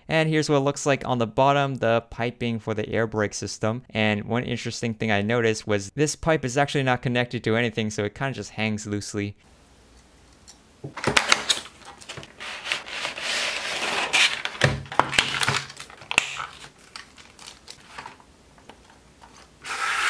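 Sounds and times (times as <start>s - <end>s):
plastic bag crinkling: 11.0s - 19.5s.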